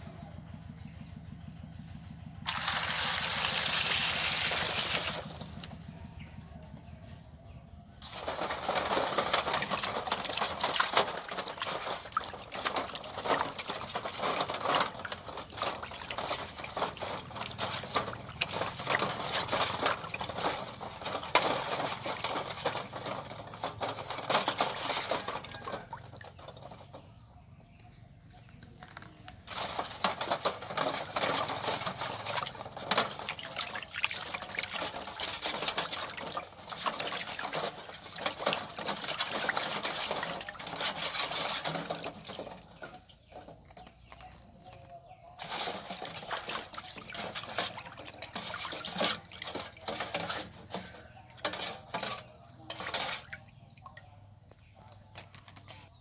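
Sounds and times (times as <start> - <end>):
water pouring off hands: 2.5 - 5.8
hands splashing water in metal basin: 2.5 - 5.9, 8.0 - 27.3, 28.9 - 44.7, 45.3 - 55.0.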